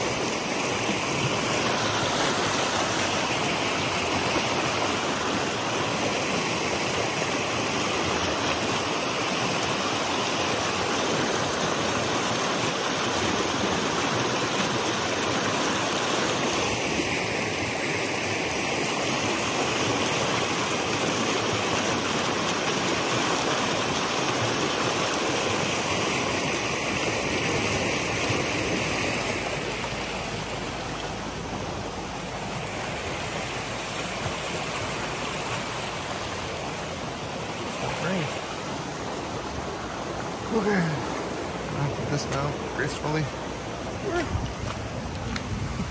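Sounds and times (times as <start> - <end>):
mountain creek rushing over rocks: 0.0 - 45.9.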